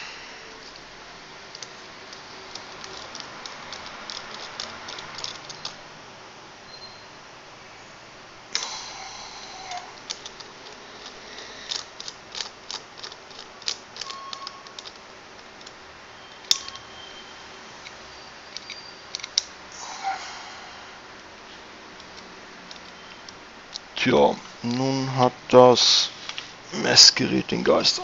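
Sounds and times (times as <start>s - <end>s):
small metallic clicks and taps: 10.0s - 15.8s, 16.4s - 16.8s, 17.8s - 19.5s.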